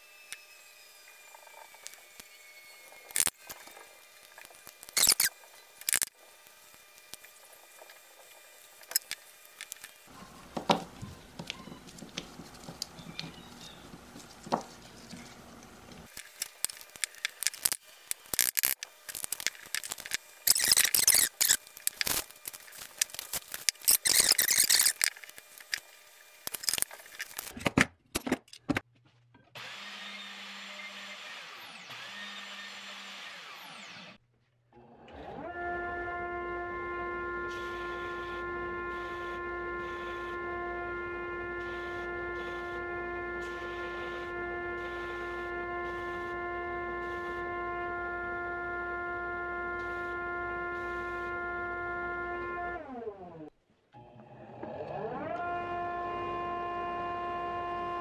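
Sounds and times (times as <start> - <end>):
bandsaw running: 29.6 - 34.2, 36.2 - 48.5.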